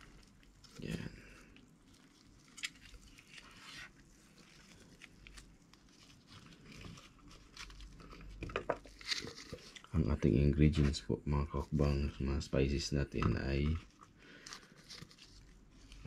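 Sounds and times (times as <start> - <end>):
faint rustling of hands: 0.0 - 11.0, 13.0 - 16.0.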